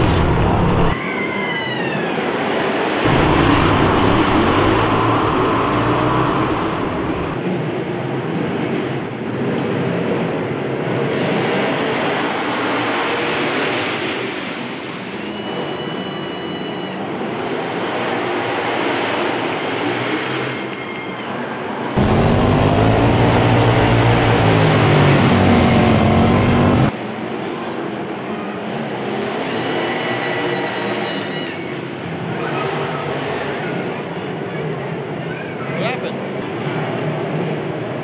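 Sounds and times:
engine revving up and down: 0:00.0 - 0:01.0, 0:02.8 - 0:07.5, 0:22.0 - 0:27.0
racing lawnmower engines: 0:00.0 - 0:38.0.

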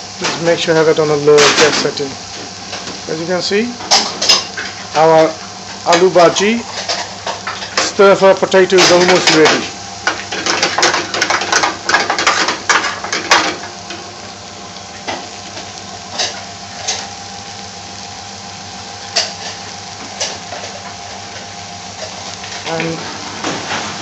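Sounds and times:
potatoes sizzling in a pan: 0:00.0 - 0:24.0.

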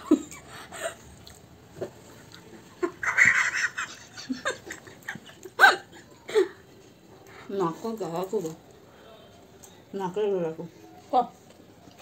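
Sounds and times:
laughter: 0:02.8 - 0:06.5.

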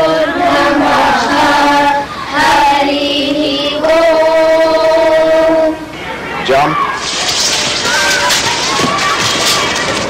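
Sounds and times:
children singing in unison: 0:00.0 - 0:05.9.

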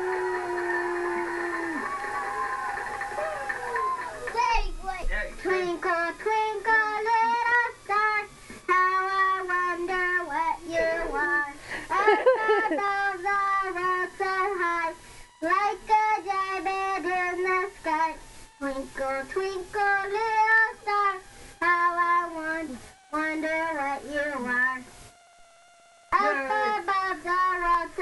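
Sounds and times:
girl singing: 0:04.3 - 0:24.9, 0:26.1 - 0:28.0.

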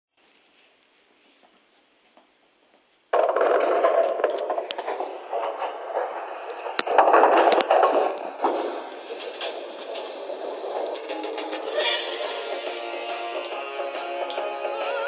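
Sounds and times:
loud dance music: 0:11.1 - 0:15.0.

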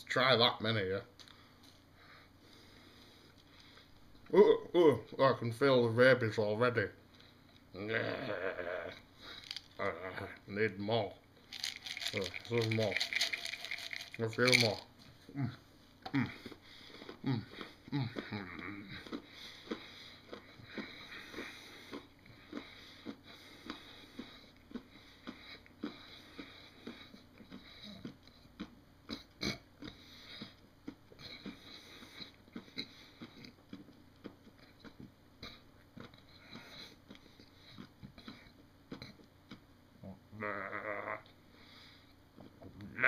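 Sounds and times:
person chewing sweets: 0:08.9 - 0:10.4, 0:11.4 - 0:39.8.

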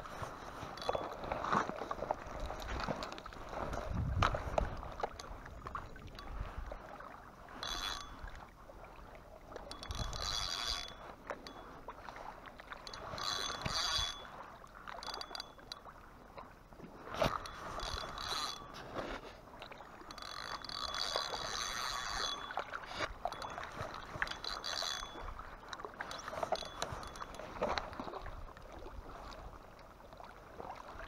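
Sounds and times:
spinning reel gears whirring: 0:00.3 - 0:01.6, 0:07.6 - 0:08.3, 0:09.6 - 0:11.7, 0:12.7 - 0:15.8, 0:17.2 - 0:19.0, 0:20.0 - 0:25.4, 0:26.0 - 0:27.6.

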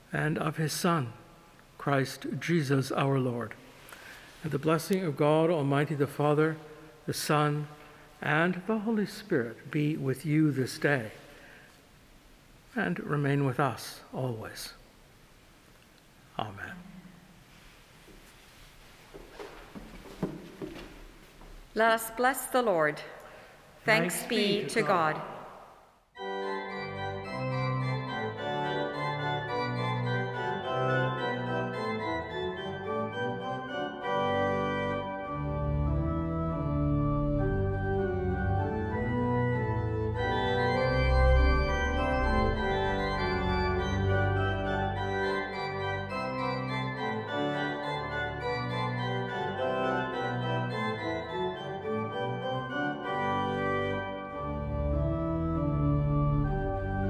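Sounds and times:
church organ playing: 0:04.0 - 0:11.5, 0:26.2 - 0:57.0.

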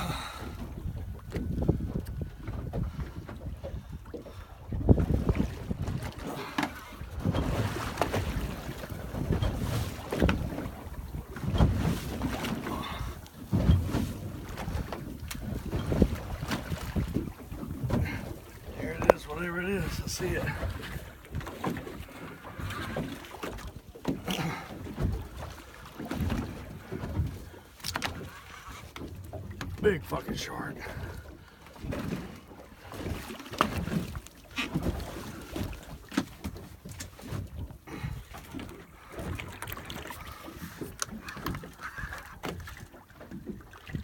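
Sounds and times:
wind buffeting microphone: 0:00.0 - 0:06.3, 0:07.0 - 0:23.1
water lapping against boat hull: 0:00.0 - 0:44.0.

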